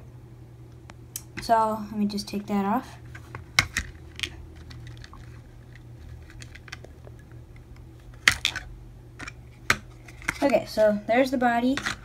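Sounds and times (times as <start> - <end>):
low steady hum: 0.0 - 12.0
plastic clicks and rattles: 3.6 - 7.2.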